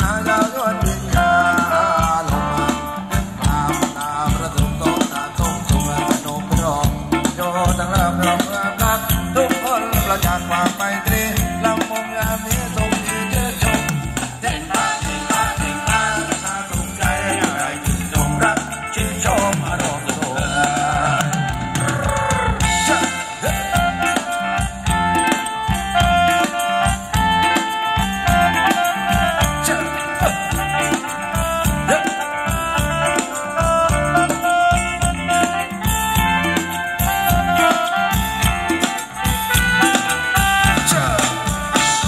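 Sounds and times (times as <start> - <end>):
rattling percussion: 0.0 - 42.0
steady drum beat: 0.0 - 42.0
melody line: 20.4 - 42.0.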